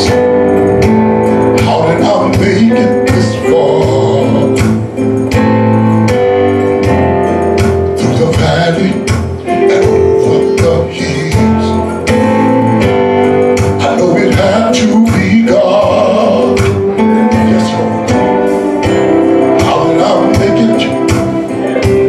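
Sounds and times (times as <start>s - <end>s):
man singing into a microphone: 0.0s - 0.4s, 1.5s - 5.0s, 7.7s - 12.2s, 13.7s - 22.0s
instrumental accompaniment: 0.0s - 22.0s
steady drum beat: 0.0s - 22.0s.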